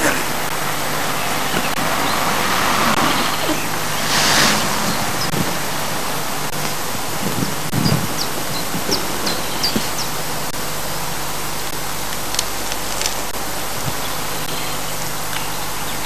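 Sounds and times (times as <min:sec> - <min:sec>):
low bumps: 0:00.0 - 0:11.8
camcorder microphone hiss: 0:00.0 - 0:16.0.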